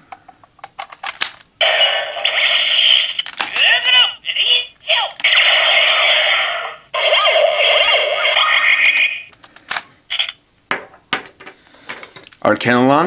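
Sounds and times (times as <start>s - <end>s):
sharp plastic clicks: 0.2s - 1.5s, 8.8s - 9.9s
electronic toy sound effect: 1.6s - 9.3s, 10.1s - 10.4s.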